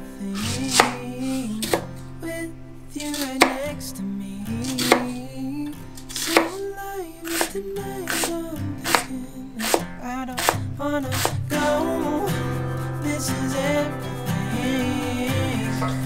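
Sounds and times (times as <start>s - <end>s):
background music: 0.0s - 16.0s
knife chopping on wooden board: 0.6s - 1.0s, 4.7s - 5.1s, 6.1s - 6.6s, 8.1s - 8.3s, 8.9s - 9.8s.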